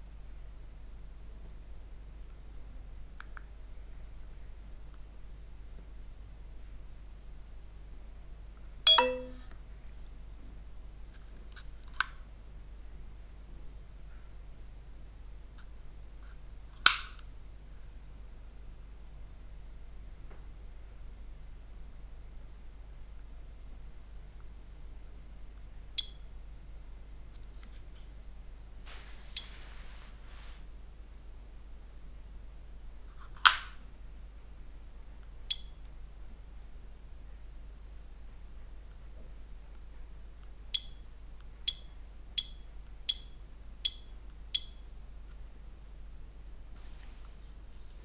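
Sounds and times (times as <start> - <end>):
sharp click: 8.9 - 9.4
electronic chime: 8.9 - 9.5
light click of a screen: 26.0 - 26.2, 29.3 - 29.5, 35.5 - 36.0, 40.7 - 41.0, 41.7 - 45.4.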